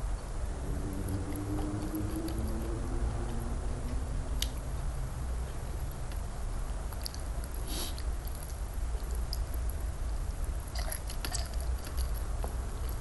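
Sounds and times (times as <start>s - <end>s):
steady low rumble: 0.0s - 13.0s
chewing raw fish: 10.7s - 13.0s.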